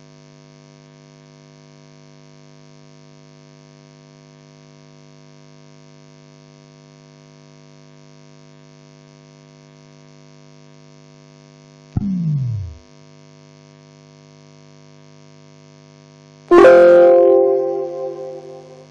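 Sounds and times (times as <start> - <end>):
short sound dropping in pitch: 16.5 - 18.8.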